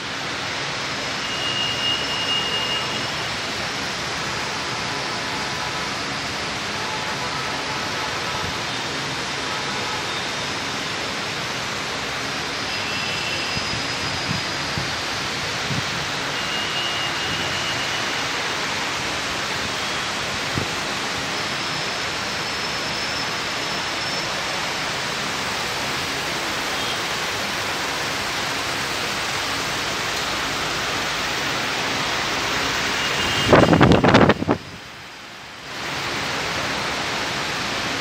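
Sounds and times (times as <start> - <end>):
steady rushing noise: 13.4 - 38.0.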